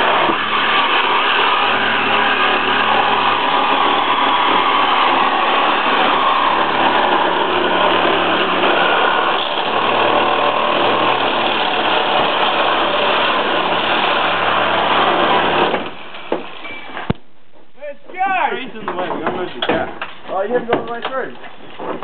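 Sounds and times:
power tool cutting sheet metal: 0:00.0 - 0:16.4.

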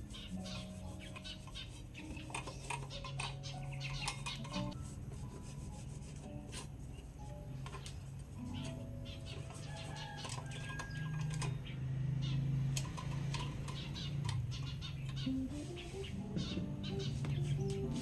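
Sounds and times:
cloth wiping lantern: 0:00.0 - 0:07.1
soft instrumental music: 0:00.0 - 0:11.8, 0:13.8 - 0:18.0
metal and glass lantern clicks: 0:10.2 - 0:11.6.

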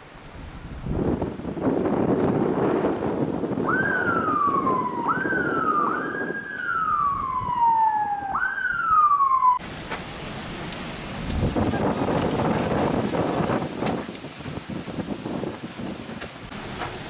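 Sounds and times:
wind noise on microphone: 0:00.0 - 0:09.6, 0:11.0 - 0:17.0
emergency siren wailing: 0:03.6 - 0:09.6.

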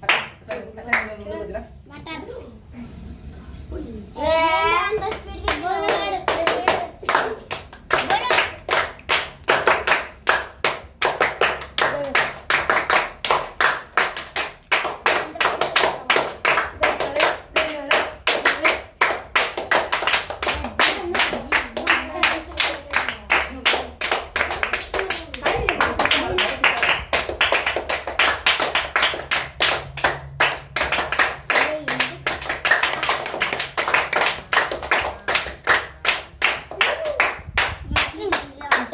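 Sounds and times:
boys clapping in rhythm: 0:00.0 - 0:01.2, 0:04.9 - 0:38.9.

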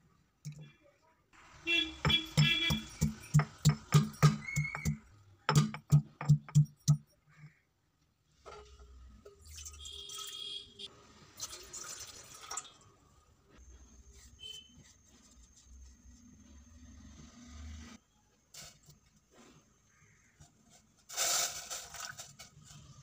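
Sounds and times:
pestle pounding in stone mortar: 0:02.0 - 0:07.0
water pouring into a saucepan: 0:11.2 - 0:12.9.

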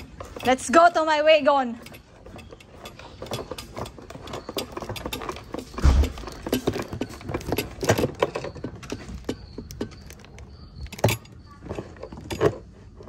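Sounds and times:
light metallic rattles: 0:00.0 - 0:13.0
footsteps on concrete floor: 0:05.6 - 0:06.7.

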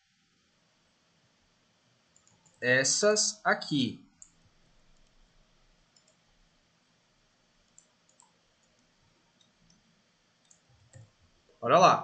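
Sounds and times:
computer mouse clicks: 0:02.1 - 0:02.6, 0:04.1 - 0:05.2, 0:05.9 - 0:06.2, 0:07.6 - 0:11.3.

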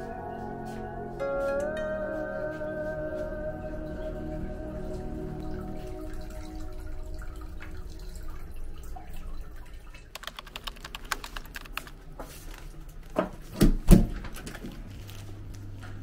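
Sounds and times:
water trickling: 0:03.5 - 0:12.1.

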